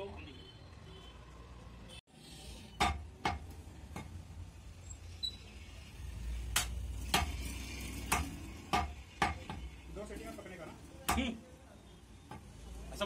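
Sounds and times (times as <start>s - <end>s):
cleaver chopping on wood block: 8.1s - 9.6s.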